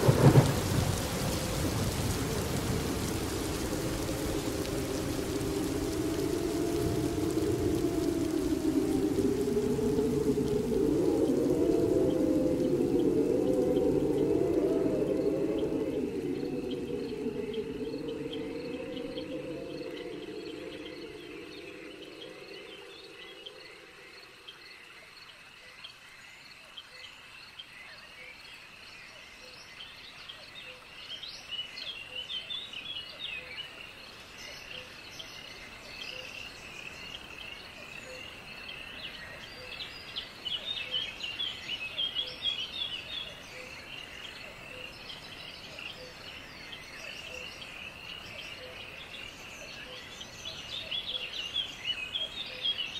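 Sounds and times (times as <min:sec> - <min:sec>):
birds chirping: 0:00.0 - 0:23.8
low drone: 0:00.0 - 0:24.1
insects chirping: 0:00.0 - 0:52.9.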